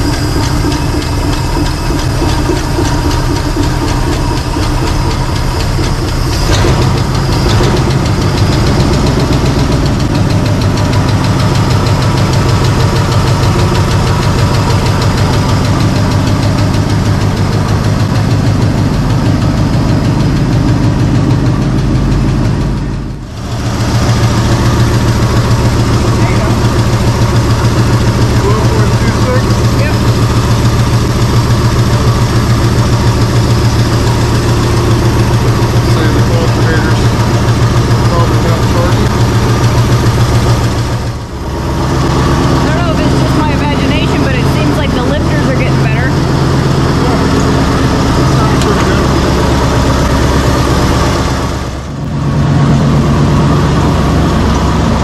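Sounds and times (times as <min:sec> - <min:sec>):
engine running steadily: 0:00.0 - 0:55.0.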